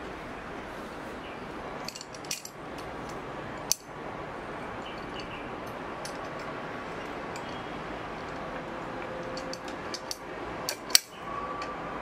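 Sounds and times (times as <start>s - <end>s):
steady background hiss: 0.0s - 12.0s
metal clamp clicking: 1.8s - 3.9s, 4.8s - 11.8s.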